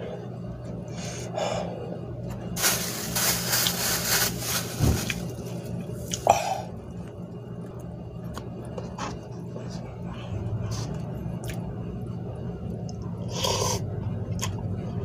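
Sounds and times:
man breathing hard: 0.9s - 2.0s.

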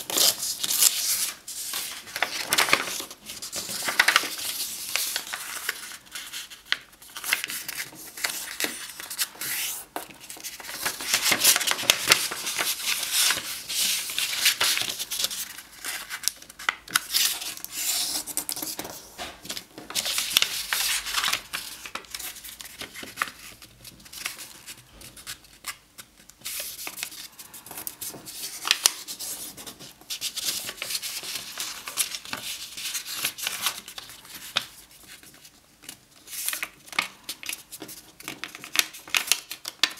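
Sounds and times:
paper rustling and crinkling: 0.0s - 39.9s.

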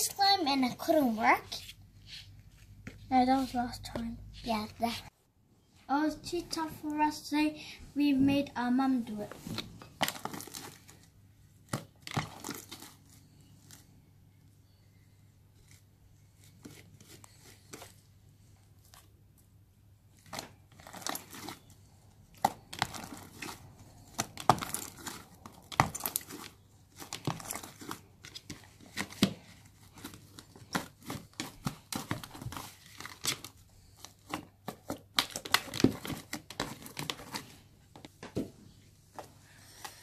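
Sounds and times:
sticky slime crackling: 9.1s - 13.8s, 20.2s - 37.6s.

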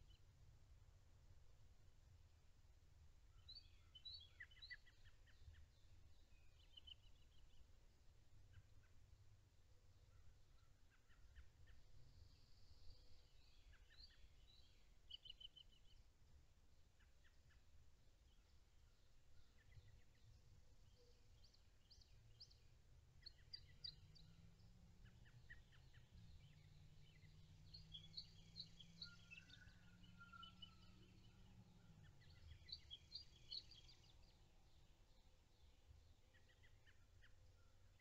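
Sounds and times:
faint low hum: 0.0s - 38.0s
bird chirps: 10.1s - 16.1s, 18.3s - 38.0s.

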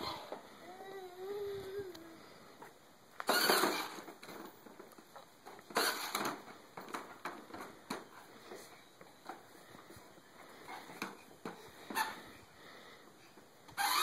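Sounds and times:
toddler babbling: 0.1s - 2.2s
scraping rustling noises: 1.5s - 14.0s.

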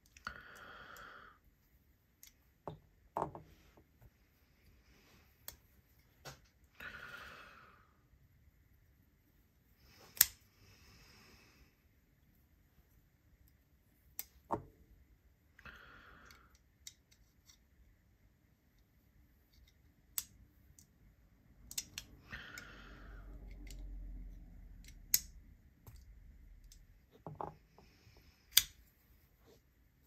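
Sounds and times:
small metallic clicks: 16.2s - 17.7s, 19.5s - 22.7s, 23.5s - 27.0s, 28.4s - 28.8s.

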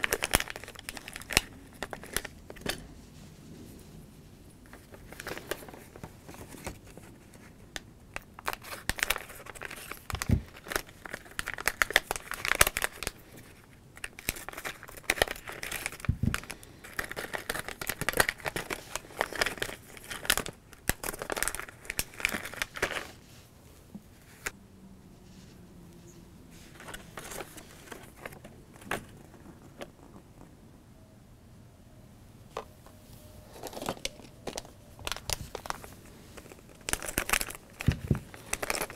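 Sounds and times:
plastic bag crinkling: 0.0s - 2.9s, 4.7s - 23.2s, 26.6s - 30.2s, 33.4s - 38.9s.

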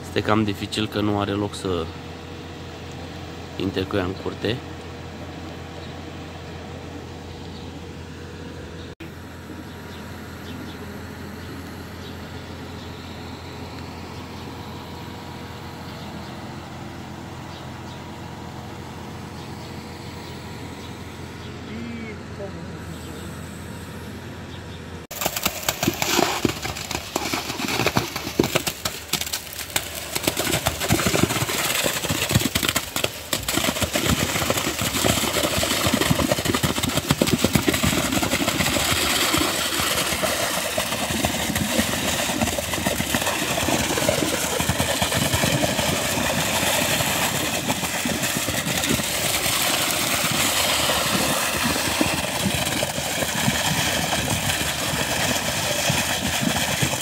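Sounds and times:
concrete pump engine running: 0.0s - 57.0s
wet concrete pouring: 25.1s - 57.0s.

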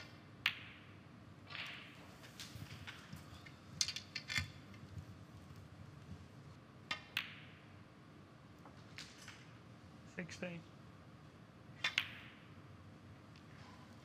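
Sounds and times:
snooker balls clicking: 0.0s - 5.6s, 6.8s - 7.8s, 11.8s - 12.6s.

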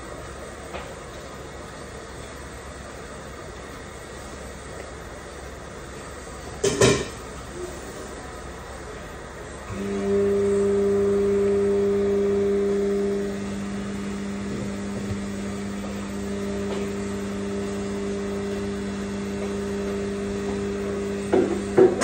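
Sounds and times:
electric motor hum: 7.5s - 22.0s.

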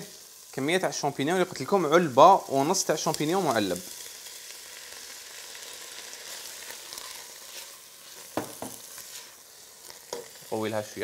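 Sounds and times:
food sizzling in a pot: 0.0s - 11.0s.

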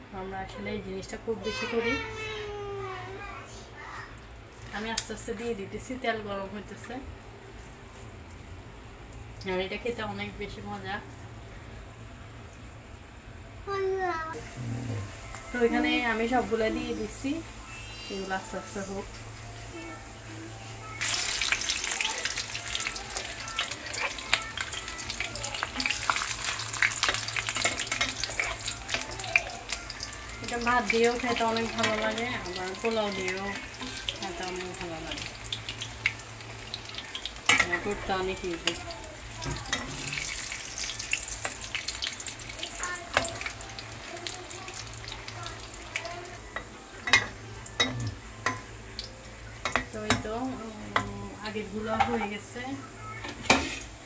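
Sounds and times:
patties sizzling in hot oil: 3.8s - 54.0s
spatula clicking and scraping pan: 25.5s - 29.5s.

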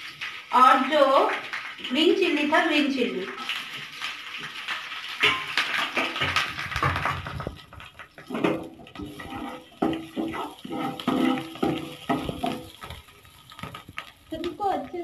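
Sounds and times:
spices sizzling in oil: 0.0s - 15.0s
spoon scraping frying pan: 8.2s - 14.1s.

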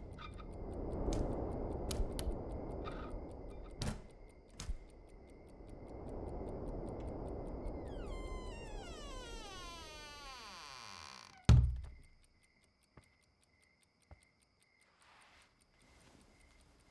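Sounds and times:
clock ticking: 0.0s - 7.9s
falling eerie tone: 5.6s - 11.4s.

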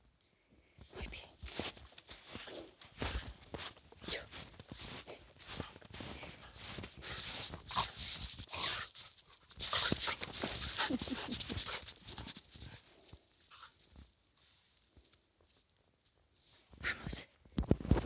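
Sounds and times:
puppy digging in snow: 2.1s - 12.8s.

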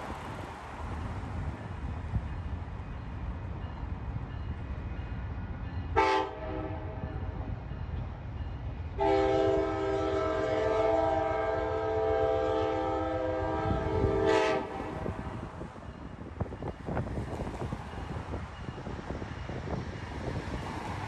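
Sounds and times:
locomotive air horn: 6.0s - 7.0s, 9.0s - 15.2s.

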